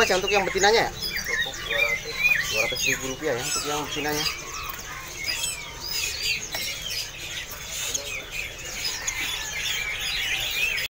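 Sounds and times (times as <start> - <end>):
songbirds chirping and whistling: 0.0 - 10.9.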